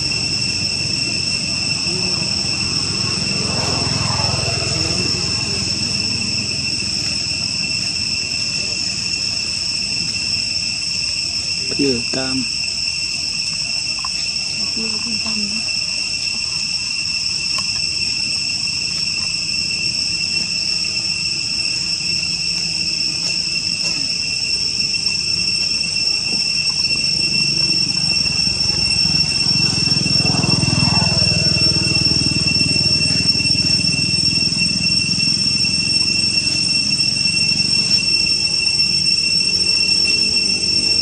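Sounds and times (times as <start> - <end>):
insect chorus droning: 0.0 - 41.0.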